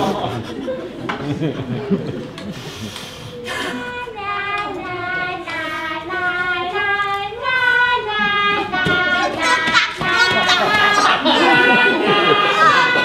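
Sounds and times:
high voice singing long notes: 8.9s - 13.0s.

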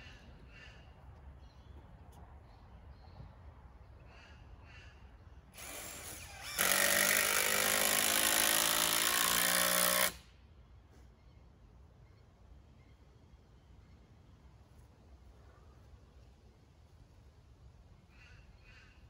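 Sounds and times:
power drill into timber: 5.6s - 10.2s.

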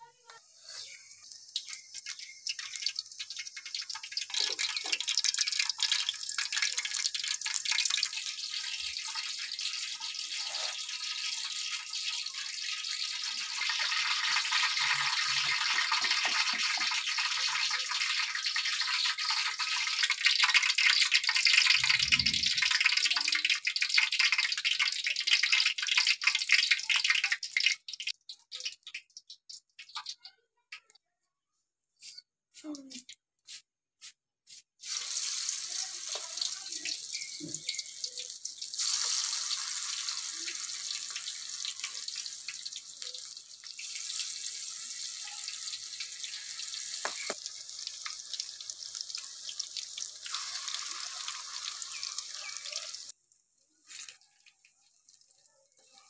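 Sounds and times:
food sizzling in hot oil: 0.1s - 30.9s, 33.5s - 56.0s.

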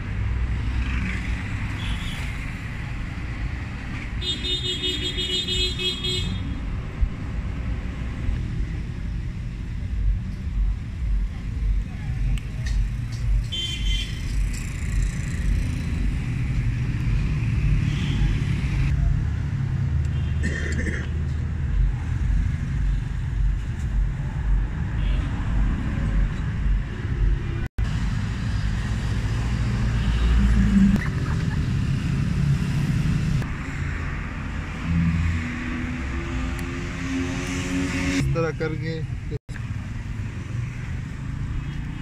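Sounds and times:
vehicle engine rumbling: 6.4s - 42.0s.

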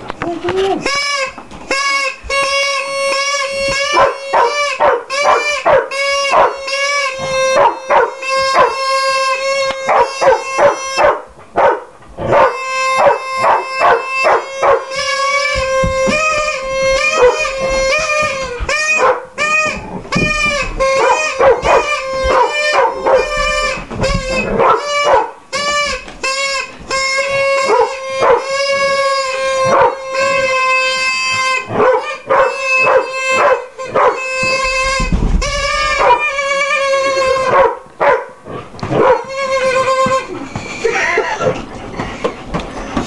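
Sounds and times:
steady note blown on small instrument: 0.7s - 11.2s, 12.2s - 37.6s, 39.2s - 41.0s
dog barking and howling: 3.9s - 6.7s, 7.4s - 8.9s, 9.8s - 15.0s, 17.0s - 17.7s, 18.9s - 19.4s, 20.9s - 25.4s, 27.6s - 28.6s, 29.6s - 30.4s, 31.7s - 34.3s, 35.9s - 36.4s, 37.1s - 39.7s.

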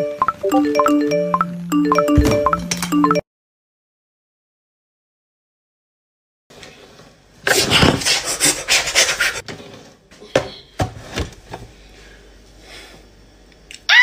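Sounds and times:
rough scraping and rubbing: 7.5s - 9.8s.

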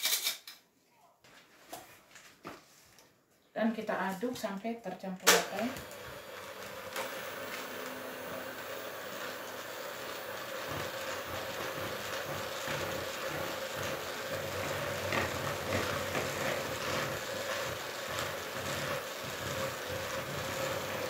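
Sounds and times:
electric hand mixer whirring: 5.3s - 21.0s.

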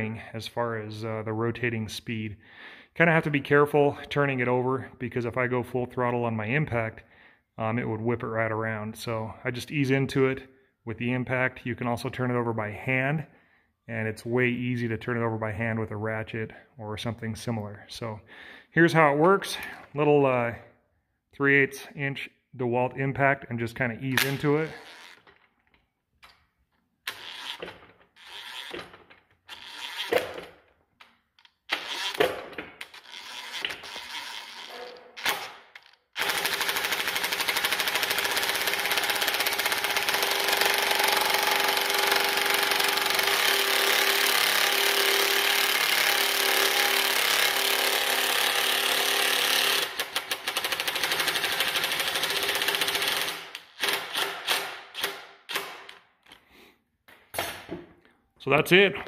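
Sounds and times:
impact wrench hammering: 36.2s - 56.0s.

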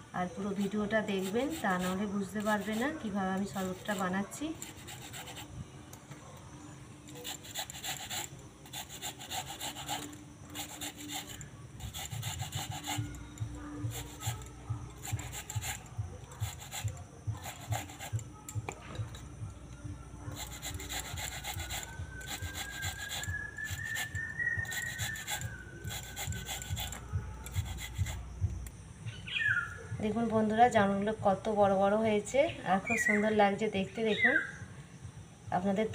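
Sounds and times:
fruit grated on metal grater: 1.0s - 5.5s, 7.1s - 18.2s, 20.3s - 28.2s.

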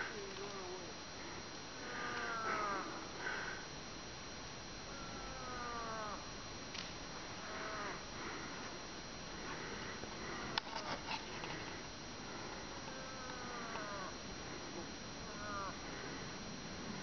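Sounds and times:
person imitating moose call: 1.8s - 3.0s, 15.2s - 15.8s.

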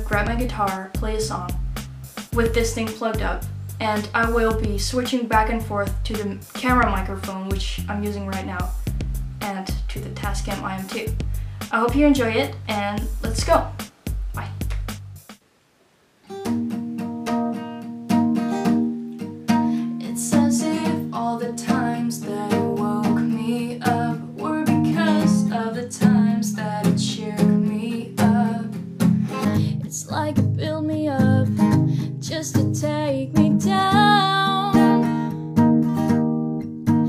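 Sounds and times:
woman singing: 0.0s - 1.6s, 2.4s - 8.7s, 19.7s - 35.3s
acoustic guitar strumming: 0.0s - 15.4s, 16.3s - 30.6s, 31.2s - 37.0s.

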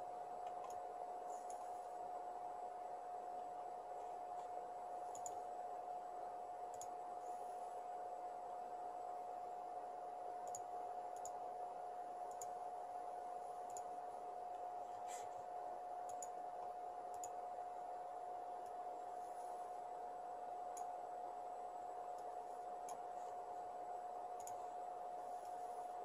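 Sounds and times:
faint steady tone and hiss: 0.0s - 26.0s
computer mouse clicking: 0.4s - 1.8s, 5.0s - 5.5s, 6.7s - 7.4s, 10.4s - 11.4s, 12.2s - 12.6s, 13.6s - 14.7s, 16.0s - 17.4s, 20.7s - 21.0s, 22.1s - 23.4s, 24.3s - 24.7s.

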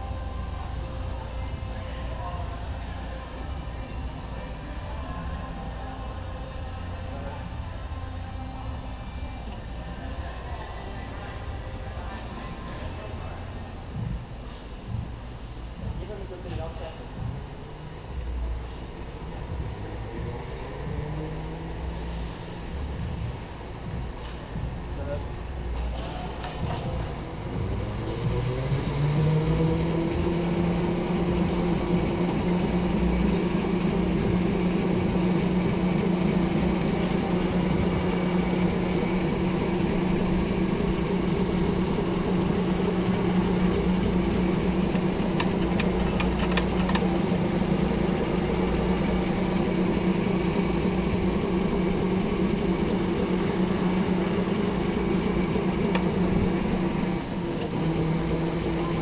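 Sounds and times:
electric go-kart motor whining: 27.0s - 59.0s.

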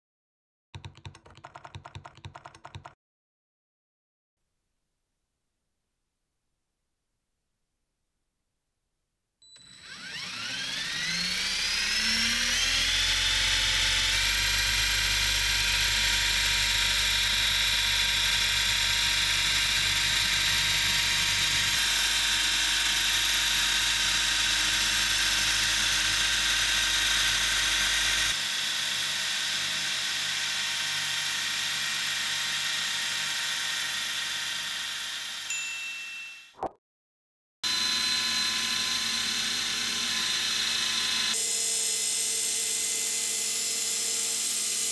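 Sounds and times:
electric motors whirring: 9.6s - 14.9s, 37.7s - 41.7s.

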